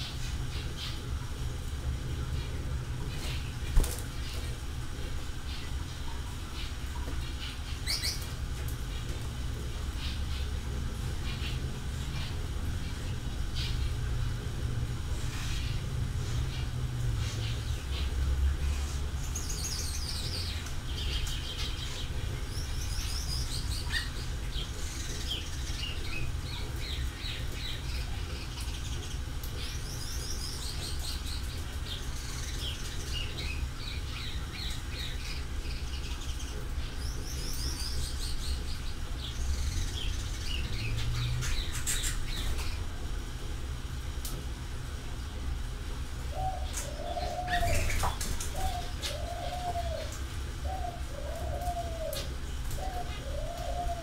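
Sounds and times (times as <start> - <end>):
small birds chirping: 6.4 - 9.2, 15.3 - 42.8, 46.3 - 54.0.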